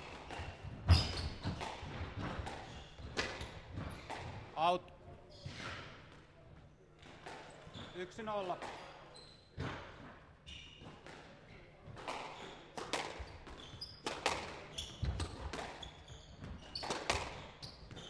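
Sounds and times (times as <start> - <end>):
squash ball hits: 0.0 - 4.4, 12.0 - 18.0
shoes squeaking on court floor: 0.3 - 4.2, 5.2 - 6.0, 7.5 - 18.0.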